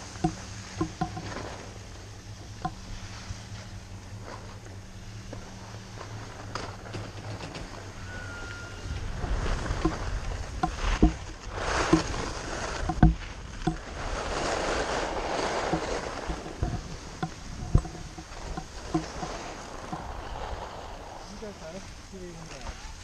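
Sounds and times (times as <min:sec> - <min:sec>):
wind rumble on microphone: 0:00.0 - 0:23.0
skis scraping over snow: 0:00.1 - 0:02.1, 0:02.9 - 0:23.0
sharp knocks: 0:10.6 - 0:12.2, 0:12.8 - 0:13.8.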